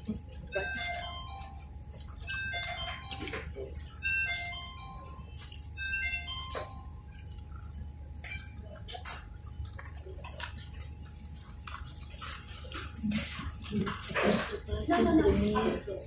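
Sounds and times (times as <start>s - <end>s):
bright chiming music: 0.5s - 7.1s.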